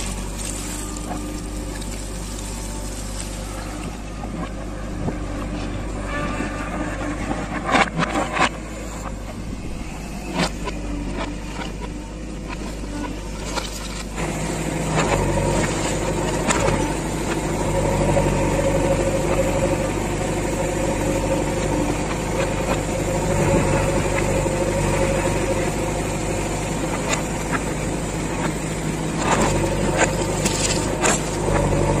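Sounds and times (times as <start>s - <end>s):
diesel engine running: 0.0s - 32.0s.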